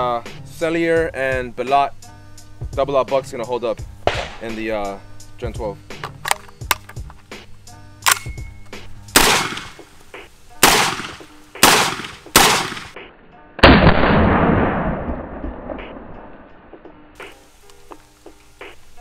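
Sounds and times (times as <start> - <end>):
shotgun shots: 4.0 - 4.6, 9.2 - 9.8, 10.6 - 13.0, 13.6 - 15.8.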